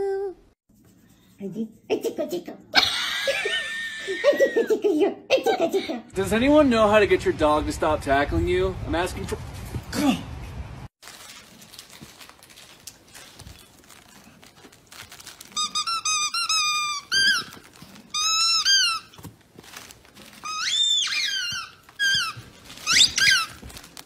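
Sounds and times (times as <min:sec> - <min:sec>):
squeaky toy squeaking: 0:15.6 - 0:19.3, 0:20.3 - 0:23.7.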